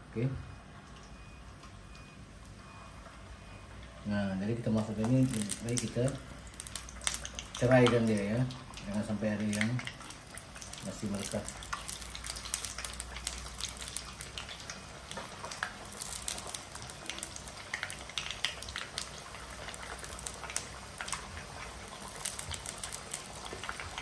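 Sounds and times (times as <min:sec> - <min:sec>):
potatoes sizzling in hot oil: 0:04.7 - 0:24.0.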